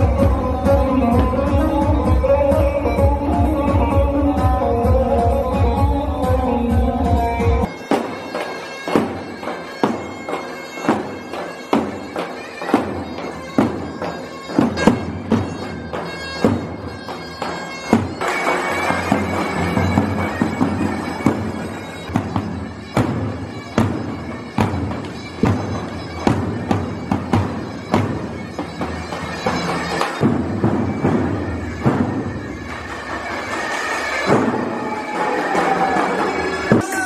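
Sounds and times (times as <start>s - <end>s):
reedy pipe melody: 0.0s - 37.0s
heavy drum strikes: 30.2s - 32.4s.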